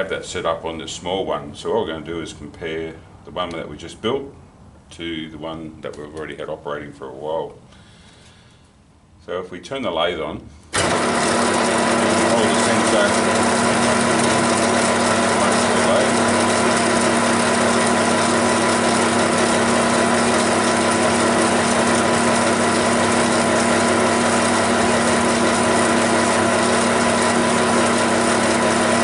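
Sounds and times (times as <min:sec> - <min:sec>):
metal lathe humming: 0:10.8 - 0:29.0.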